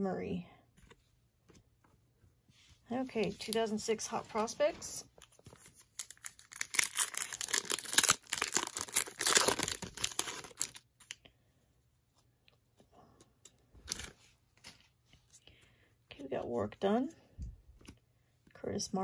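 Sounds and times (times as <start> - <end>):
foil wrapper tearing and crinkling: 5.8 - 10.8.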